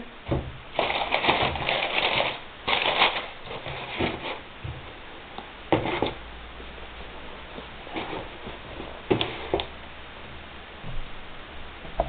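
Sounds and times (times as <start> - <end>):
tissue paper crinkling: 0.7 - 4.4.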